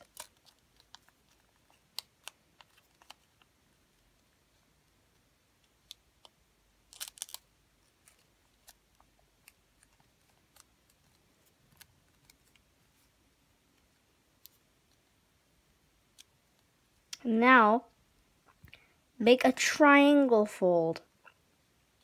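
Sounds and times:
paper being folded and creased: 0:00.0 - 0:03.5.

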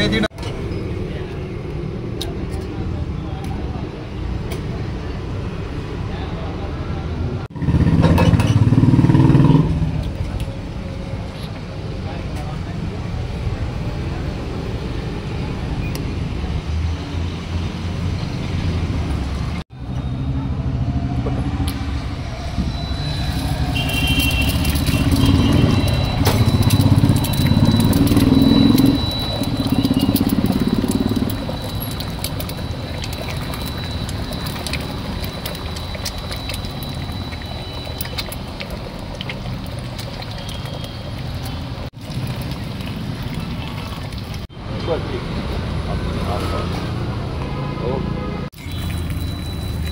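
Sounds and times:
eggs frying in oil: 0:23.2 - 0:44.5, 0:48.6 - 0:49.9.

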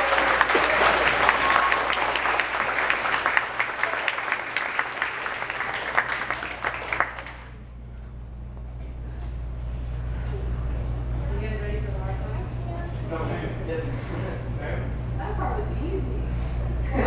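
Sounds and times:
audience applauding: 0:00.0 - 0:07.6
low steady hum: 0:00.0 - 0:17.0.

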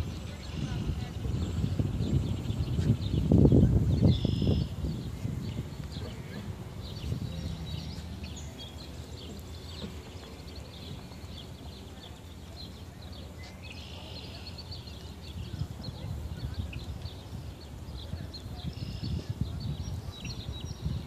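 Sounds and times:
small birds chirping: 0:00.0 - 0:21.0
steady low rumble: 0:00.0 - 0:21.0.

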